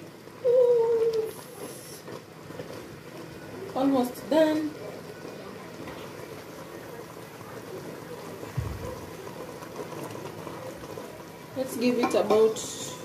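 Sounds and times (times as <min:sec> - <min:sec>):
stew bubbling in a pot: 0:00.0 - 0:13.0
dull low thump: 0:08.6 - 0:09.0.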